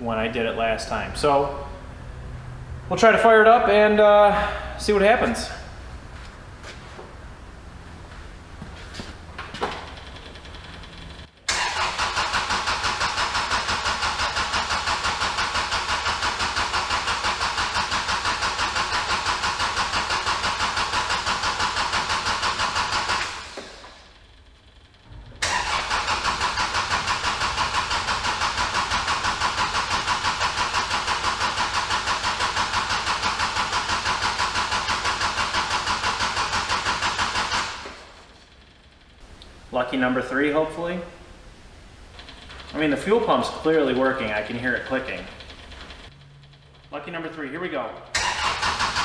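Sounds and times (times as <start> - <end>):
diesel engine cranking on starter: 9.3 - 40.7, 41.5 - 49.0.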